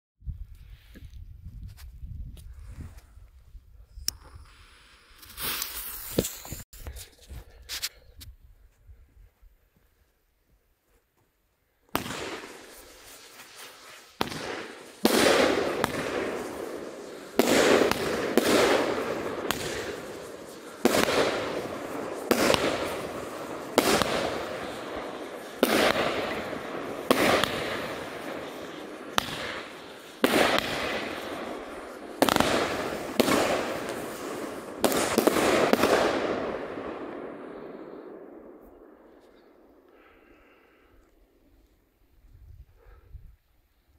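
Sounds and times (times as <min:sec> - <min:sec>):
crackling of firework stars: 0:01.7 - 0:08.3, 0:11.6 - 0:42.9
firework shots launching: 0:11.9 - 0:38.6.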